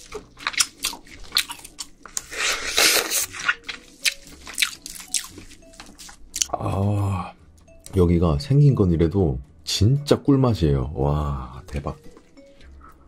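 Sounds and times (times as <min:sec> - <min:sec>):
wet chewing with crackles: 0:00.0 - 0:06.6, 0:12.0 - 0:13.0
slurp: 0:02.1 - 0:04.2.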